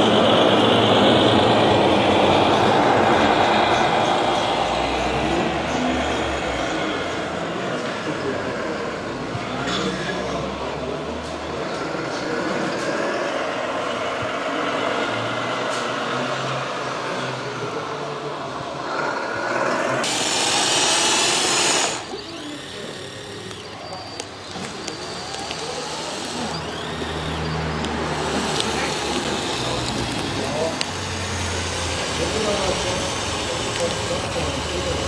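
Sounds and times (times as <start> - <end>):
crowd chatter: 0.0 - 35.0
sound-module engine noise: 0.0 - 35.0
loud hiss: 20.0 - 22.5
small electric drive motors: 20.0 - 35.0.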